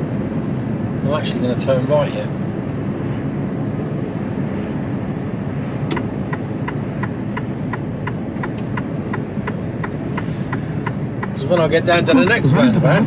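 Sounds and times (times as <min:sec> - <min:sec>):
truck engine and road rumble: 0:00.0 - 0:13.0
turn indicator clicking: 0:05.9 - 0:12.6.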